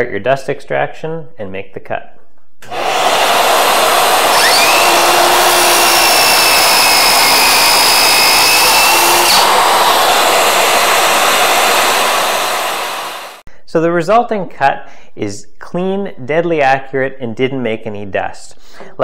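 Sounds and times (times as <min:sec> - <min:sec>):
circular saw cutting board: 0:02.6 - 0:13.4
dust extractor hissing: 0:02.6 - 0:13.4.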